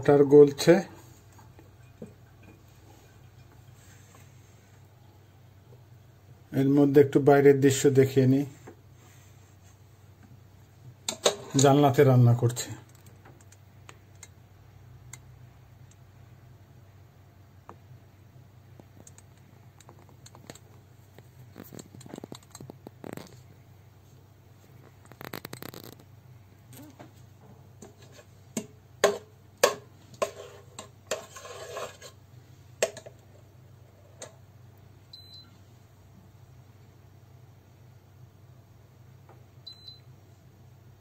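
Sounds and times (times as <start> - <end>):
spatula scraping cooker pot: 27.8 - 33.1.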